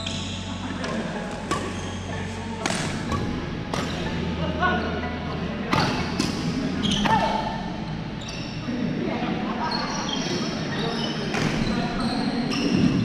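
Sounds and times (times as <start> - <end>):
rackets hitting shuttlecock: 0.8 - 1.9, 2.6 - 4.2, 5.7 - 7.2.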